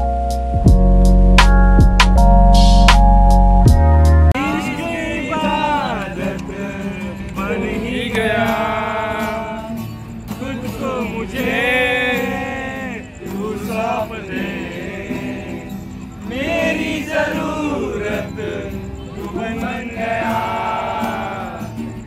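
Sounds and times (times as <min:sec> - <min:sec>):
instrumental backing: 0:00.0 - 0:04.4.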